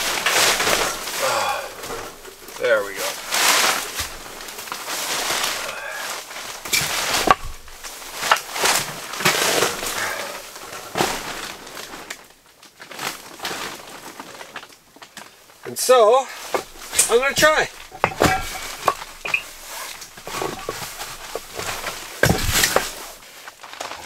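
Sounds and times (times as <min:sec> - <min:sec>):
rustling and shuffling: 0:00.0 - 0:24.0
sharp knocks and clicks: 0:16.5 - 0:23.1.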